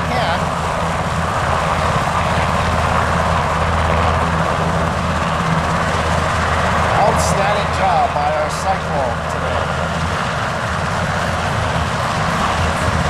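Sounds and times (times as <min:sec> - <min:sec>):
helicopter rotors and engines droning: 0:00.0 - 0:13.0.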